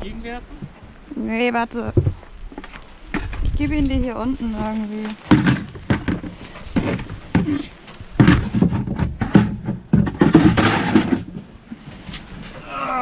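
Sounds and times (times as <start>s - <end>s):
bucket knocking and thudding: 1.8s - 3.8s, 4.8s - 12.6s.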